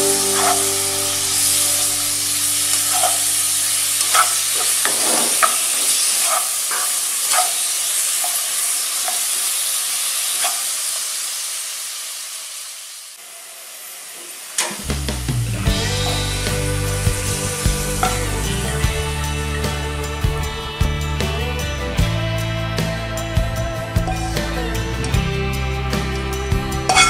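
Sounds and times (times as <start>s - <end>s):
food sizzling in butter: 0.0s - 19.6s
spatula scraping and tapping pan: 2.7s - 3.4s, 4.0s - 8.4s.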